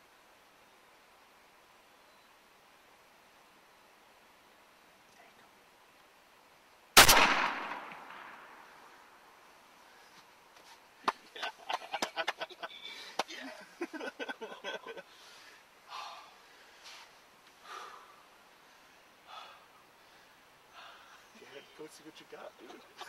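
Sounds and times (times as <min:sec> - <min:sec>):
person breathing hard: 0:15.0 - 0:21.3.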